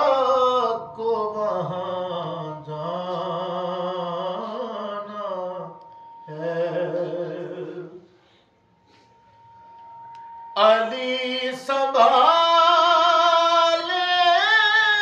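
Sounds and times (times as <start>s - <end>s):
person chanting: 0.0s - 8.1s
faint steady high tone: 0.0s - 15.0s.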